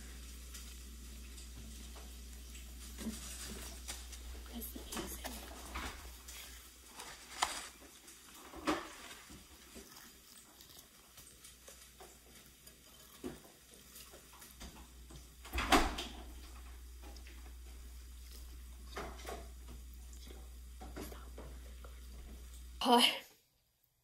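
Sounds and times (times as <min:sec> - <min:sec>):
crispy chicken crackling: 0:00.0 - 0:15.4
biting and chewing: 0:05.3 - 0:14.8.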